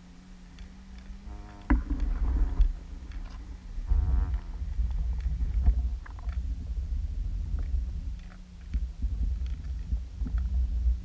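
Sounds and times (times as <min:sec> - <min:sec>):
steady low hum: 0:00.0 - 0:11.0
underwater water flow rumble: 0:00.0 - 0:11.0
faint clicks and ticks: 0:00.4 - 0:10.7.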